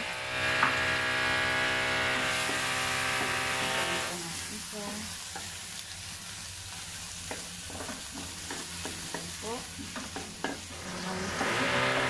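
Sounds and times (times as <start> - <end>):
food sizzling in a wok: 0.0 - 12.0
spatula scraping and knocking pan: 2.2 - 3.7, 7.2 - 12.0.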